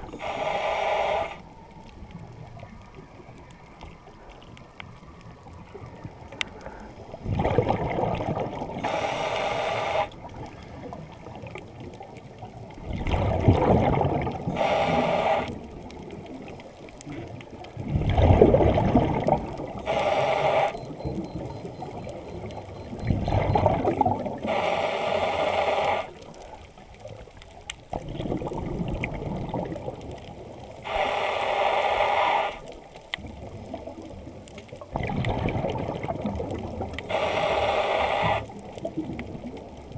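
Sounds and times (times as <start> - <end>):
diver breathing through regulator: 0.0 - 1.4, 8.8 - 10.2, 14.5 - 15.6, 19.8 - 23.6, 24.4 - 26.2, 30.8 - 32.7, 37.1 - 38.5
water noise: 0.0 - 39.9.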